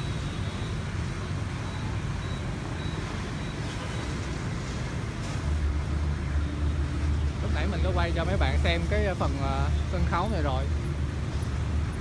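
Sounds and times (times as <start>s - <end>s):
motorbike traffic passing: 0.0s - 12.0s.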